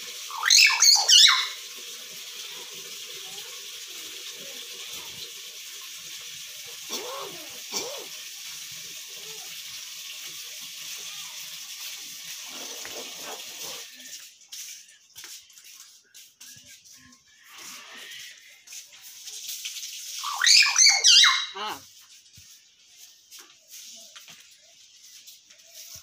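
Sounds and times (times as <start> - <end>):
bird whistled calls: 0.3 - 1.6, 20.2 - 21.6
steady hiss: 2.0 - 20.0.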